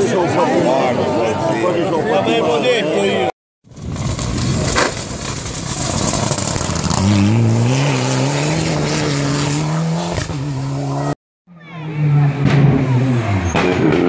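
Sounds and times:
gravel and tyre noise: 0:03.2 - 0:14.0
rally car engine revving: 0:04.0 - 0:14.0
second rally car engine: 0:04.8 - 0:14.0.

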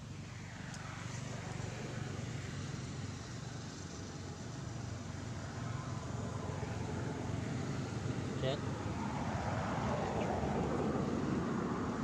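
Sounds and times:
road traffic rumble: 0:00.0 - 0:12.0
vehicle passing by: 0:03.9 - 0:12.0.

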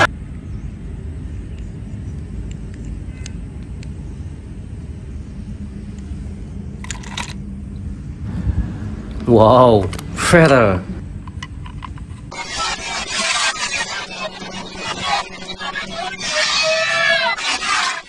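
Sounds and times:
plastic toy cars clattering: 0:06.8 - 0:07.4
wind rumble on microphone: 0:07.6 - 0:10.2.

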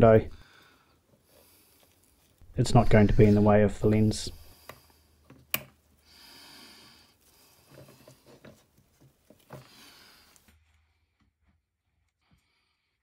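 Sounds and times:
gloved hands rustling: 0:01.0 - 0:11.0.

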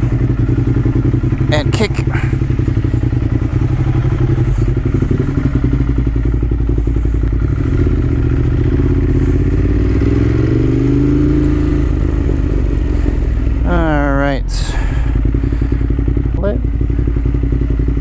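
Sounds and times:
motorcycle engine at low revs: 0:00.0 - 0:18.0.

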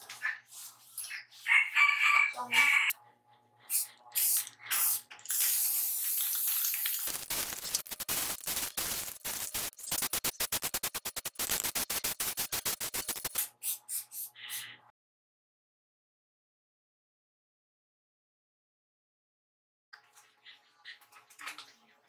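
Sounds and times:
aerosol spray can hissing: 0:03.7 - 0:14.7.

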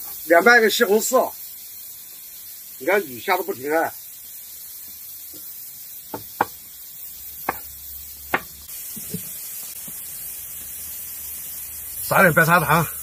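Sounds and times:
cleaver striking cutting board: 0:06.1 - 0:06.6, 0:07.4 - 0:07.7, 0:08.3 - 0:08.5.

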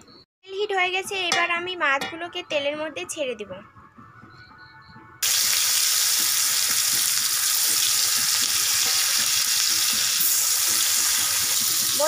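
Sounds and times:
fish sizzling in hot oil: 0:05.2 - 0:12.0.

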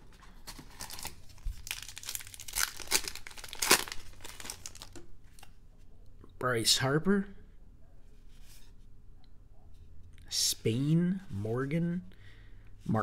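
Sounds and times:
card wrapper crinkling: 0:00.3 - 0:05.5.

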